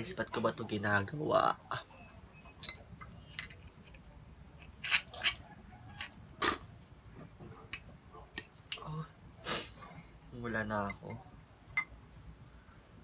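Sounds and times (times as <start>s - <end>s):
glass bottle and glass clinking: 2.5s - 3.7s, 10.8s - 11.9s.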